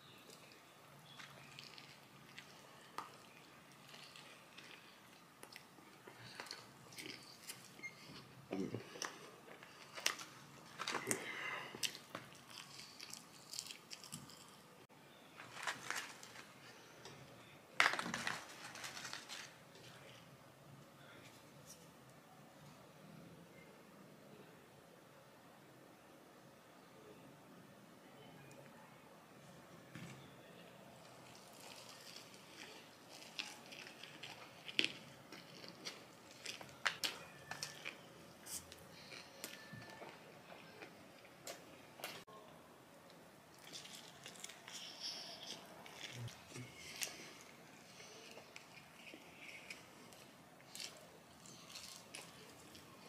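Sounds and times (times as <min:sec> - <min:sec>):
crunching fried food: 0:00.1 - 0:14.7, 0:15.4 - 0:16.8, 0:17.8 - 0:20.1, 0:31.0 - 0:42.2, 0:43.5 - 0:53.0
quiet chewing: 0:00.1 - 0:14.7, 0:31.0 - 0:42.3, 0:43.1 - 0:53.0.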